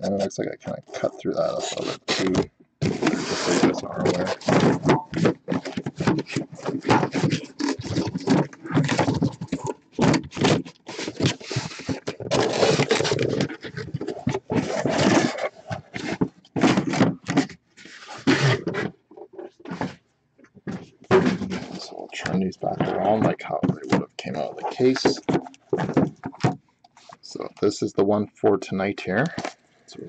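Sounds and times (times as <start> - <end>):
cardboard boxes scraping and rustling: 1.6 - 18.9.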